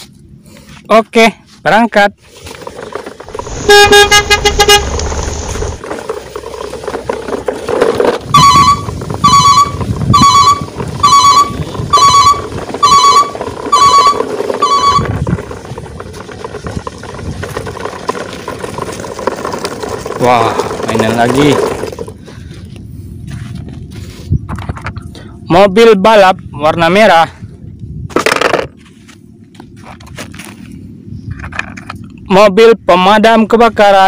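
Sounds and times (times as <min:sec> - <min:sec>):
truck horn toot: 0:03.4 - 0:05.8, 0:08.3 - 0:15.2
electronic reversing beeps: 0:08.3 - 0:15.3.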